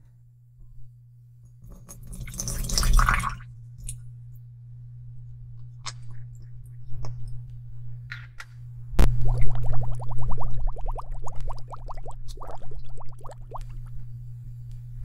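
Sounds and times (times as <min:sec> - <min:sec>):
steady low hum: 0:00.0 - 0:15.0
water pouring into glass bowl: 0:02.0 - 0:03.4.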